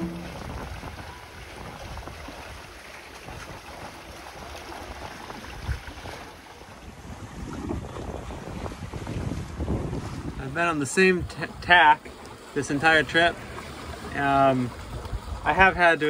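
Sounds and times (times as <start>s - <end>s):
ocean waves washing: 0.0s - 1.3s
wind buffeting microphone: 0.0s - 11.8s, 13.7s - 15.8s.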